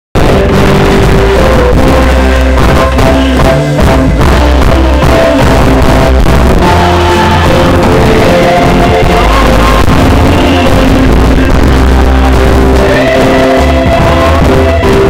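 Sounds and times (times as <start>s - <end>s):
band with bass and drums: 0.2s - 15.0s
choir singing: 6.6s - 15.0s.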